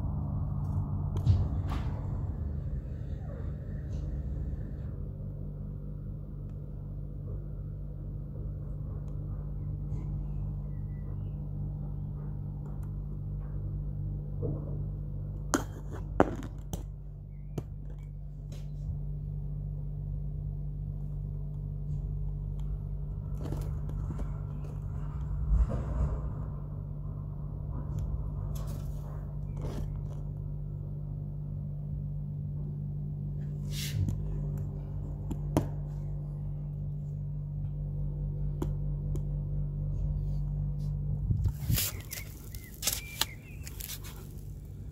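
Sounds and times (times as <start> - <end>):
low mechanical hum: 0.0 - 44.9
rubbing against microphone: 40.9 - 44.7.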